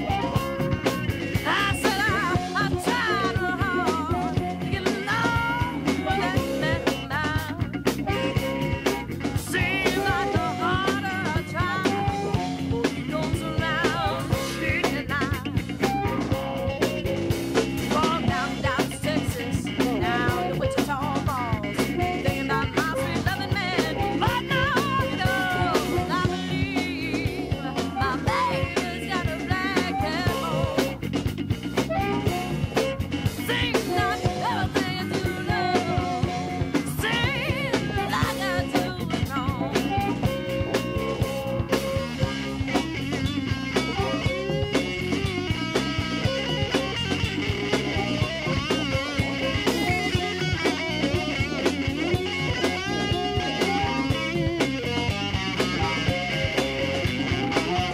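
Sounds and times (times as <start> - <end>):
blues rock band: 0.0 - 57.9
drum kit: 0.0 - 57.9
person singing: 1.3 - 7.6, 9.4 - 16.0, 17.9 - 31.0, 33.4 - 40.5.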